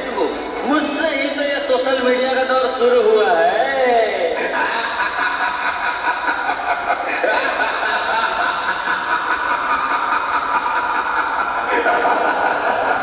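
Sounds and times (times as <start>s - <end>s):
children laughing: 0.0s - 1.0s, 4.3s - 13.0s.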